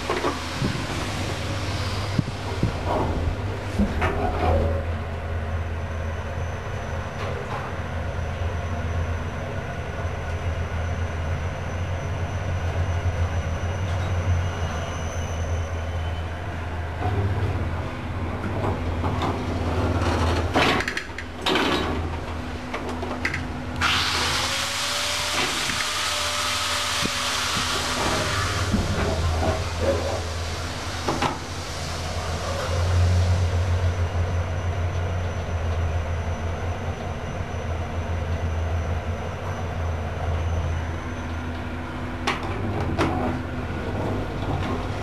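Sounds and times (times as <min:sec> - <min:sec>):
loud steady hiss: 0:23.8 - 0:34.1.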